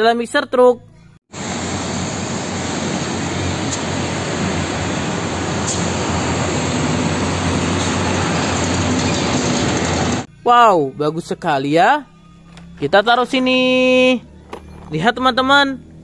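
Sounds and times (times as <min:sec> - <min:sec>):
trucks driving past: 0:01.3 - 0:10.3.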